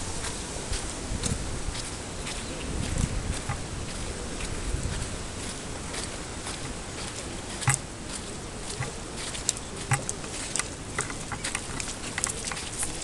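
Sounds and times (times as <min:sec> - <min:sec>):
steady hiss: 0:00.0 - 0:03.9
footsteps: 0:00.0 - 0:13.0
light clicks and ticks: 0:07.6 - 0:07.9, 0:08.7 - 0:13.0.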